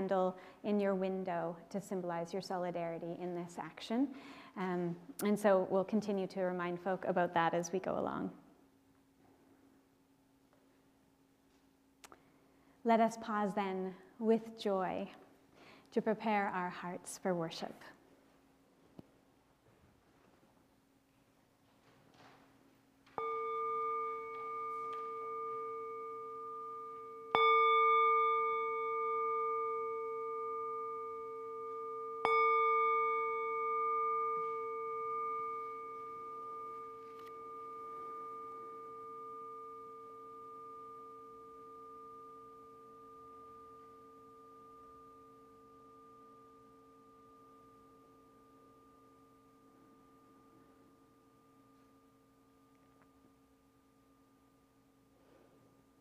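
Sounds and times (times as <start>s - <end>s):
singing bowl ringing: 22.8s - 56.0s.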